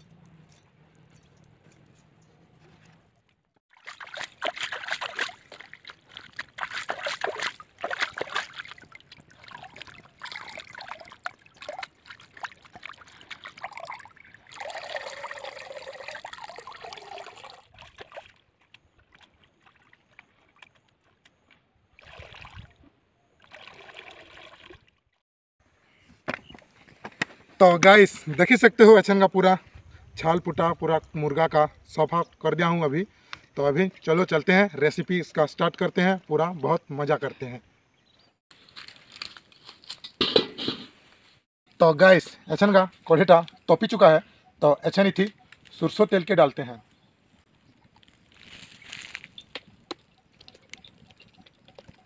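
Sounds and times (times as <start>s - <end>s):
water sloshing in a metal bowl: 3.7s - 21.3s, 49.8s - 52.0s.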